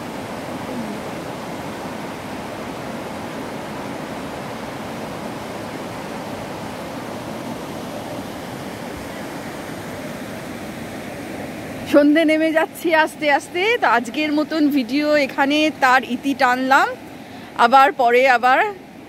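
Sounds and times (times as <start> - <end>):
river rushing over boulders: 0.0 - 14.4.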